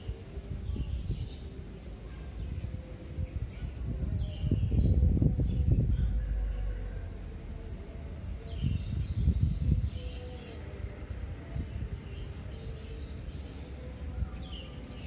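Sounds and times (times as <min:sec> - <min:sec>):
small birds chirping: 0:07.6 - 0:15.0.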